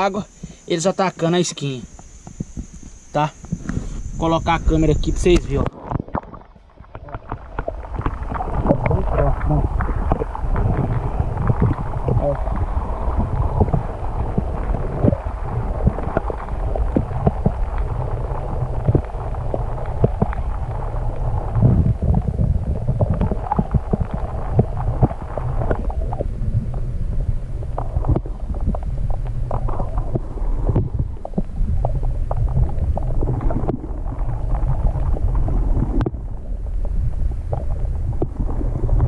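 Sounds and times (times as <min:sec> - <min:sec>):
underwater low rumble: 0:01.8 - 0:39.0
underwater knocks and clicks: 0:01.9 - 0:03.9, 0:04.9 - 0:39.0.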